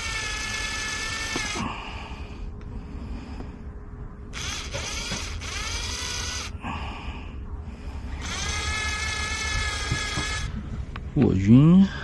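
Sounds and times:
cordless drill motor whine: 0.0s - 2.0s, 4.3s - 6.6s, 8.2s - 10.6s.

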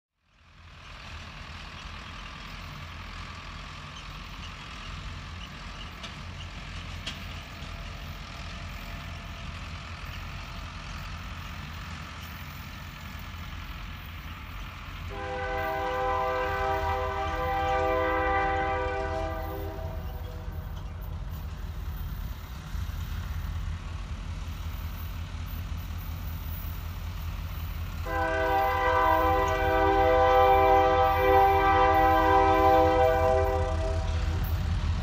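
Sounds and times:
locomotive air horn blast: 15.1s - 20.6s, 28.0s - 34.4s.

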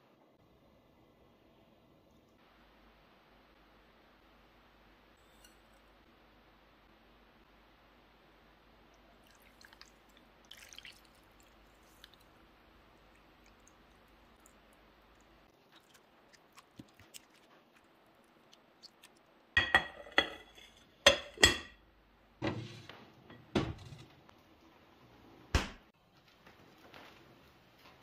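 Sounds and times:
glass kitchenware clinking: 19.6s - 21.8s.

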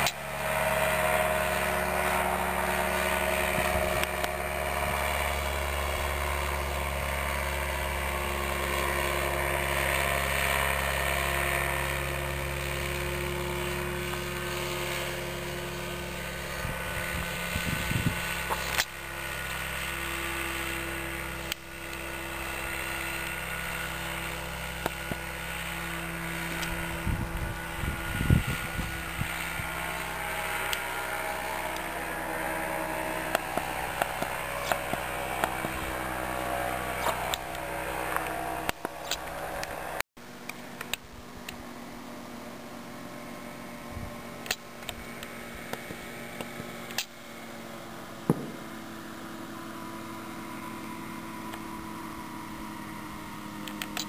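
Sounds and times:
ultralight engine droning overhead: 0.0s - 54.0s
wind crackles on microphone: 16.5s - 18.8s, 26.6s - 30.6s.

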